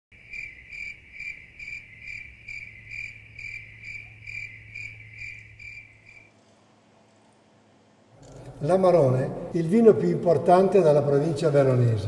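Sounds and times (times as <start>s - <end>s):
cricket chirping: 0.1s - 6.3s
faint low hum: 1.5s - 12.0s.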